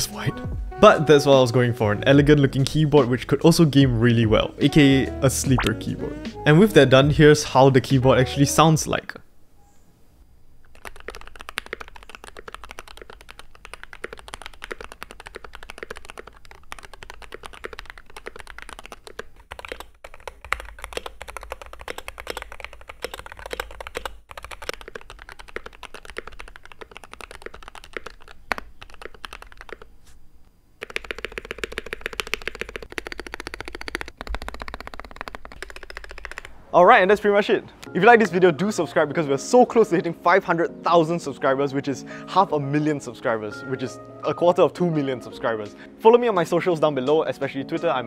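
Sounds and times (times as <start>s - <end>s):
fast keyboard typing: 10.6s - 30.0s, 30.8s - 36.6s.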